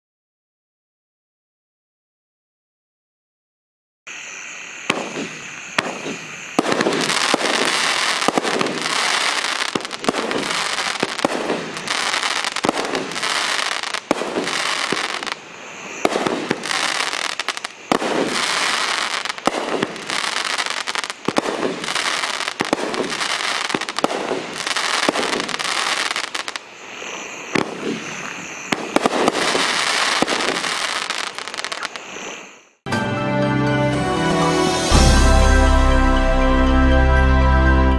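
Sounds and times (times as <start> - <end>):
firework fuse hissing: 4.1 - 32.8
sizzling crackle of firework stars: 4.1 - 32.8
firework shots and bursts: 4.8 - 32.6.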